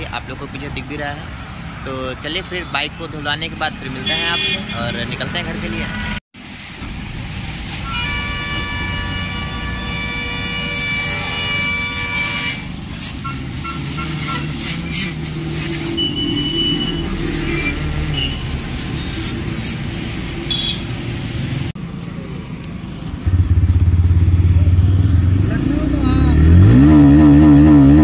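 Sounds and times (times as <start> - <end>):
passing vehicles: 0.0 - 28.0
car horn toots: 4.0 - 5.0, 7.8 - 15.1, 15.9 - 18.5, 20.5 - 20.9
hose spraying water: 6.4 - 23.2
motorcycle engine running: 23.2 - 26.3.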